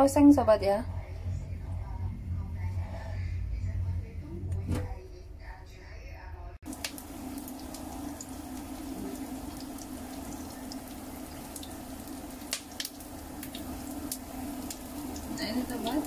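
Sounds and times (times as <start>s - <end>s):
low hum: 0.0s - 15.9s
garlic sizzling in hot oil: 6.7s - 16.0s.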